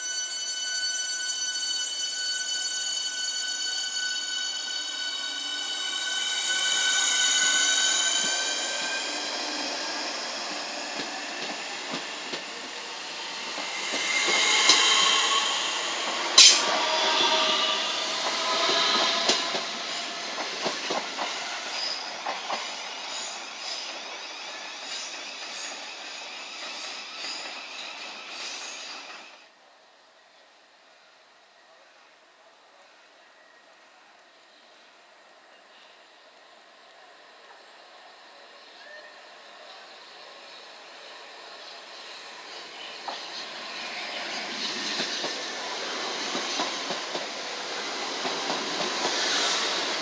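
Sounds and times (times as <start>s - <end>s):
wheel squeal: 0.0s - 20.3s
electric train whine: 0.0s - 29.5s, 33.4s - 50.0s.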